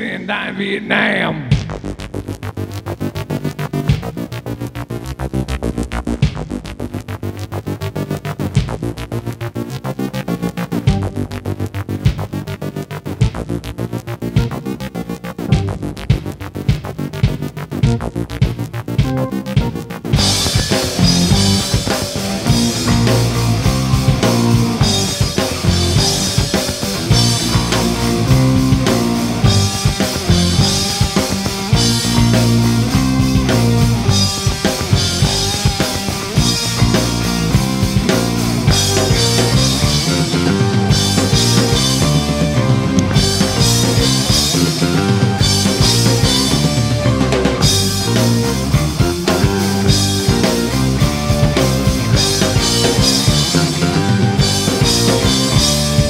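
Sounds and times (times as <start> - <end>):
electric bass: 0.9 - 56.0
drum kit steady beat: 1.5 - 2.4, 3.8 - 4.4, 6.1 - 7.0, 8.5 - 9.0, 10.9 - 11.4, 12.0 - 12.4, 13.2 - 13.6, 14.4 - 14.8, 15.5 - 56.0
rock band playing: 15.5 - 56.0
electric guitar: 19.2 - 56.0.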